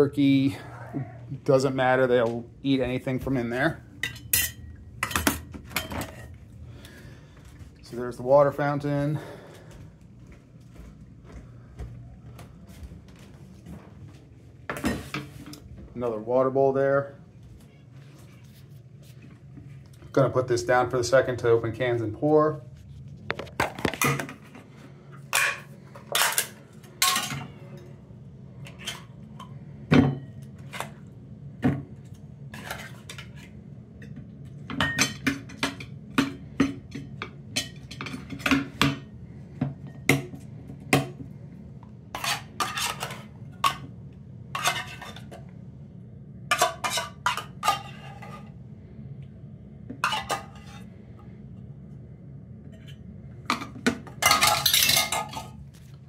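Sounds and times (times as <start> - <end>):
steady low hum: 0.0 - 56.0
metal spoon clinking on bowls: 4.0 - 6.2.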